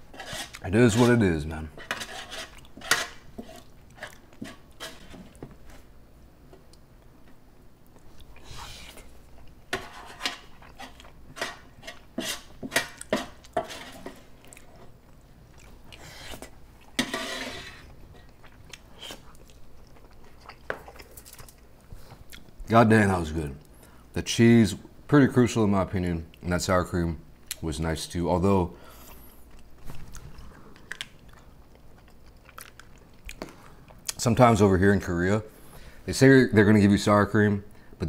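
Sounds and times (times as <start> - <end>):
spoon scraping sheet pan: 0.0 - 5.4, 9.7 - 14.2, 17.0 - 17.9
chewing food: 12.8 - 17.0, 17.8 - 22.6, 29.5 - 34.2.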